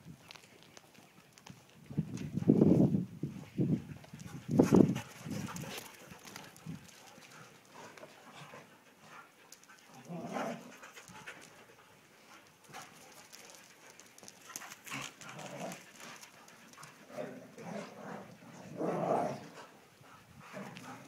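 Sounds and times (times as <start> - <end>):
dog panting: 3.7 - 17.1.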